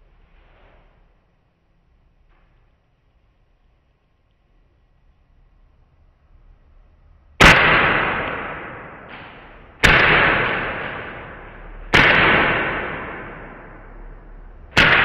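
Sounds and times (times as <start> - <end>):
airsoft pistol shots: 7.4 - 14.1, 14.7 - 15.0.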